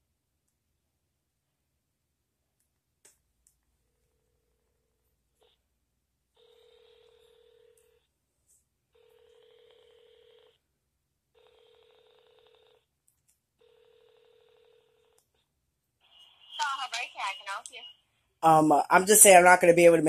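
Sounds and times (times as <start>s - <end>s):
phone ringback tone: 6.4s - 8.1s, 9.0s - 10.6s, 11.4s - 12.8s, 13.6s - 15.2s.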